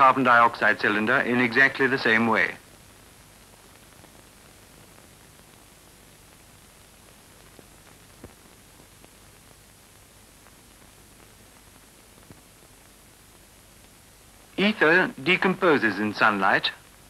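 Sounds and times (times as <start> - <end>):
film soundtrack hiss: 0.0 - 17.0
faint clicks: 7.4 - 9.6.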